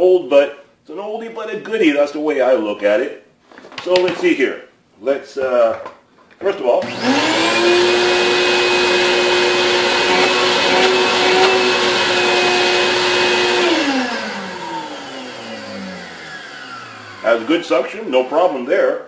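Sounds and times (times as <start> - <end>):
shop vacuum motor whining: 6.8 - 18.7.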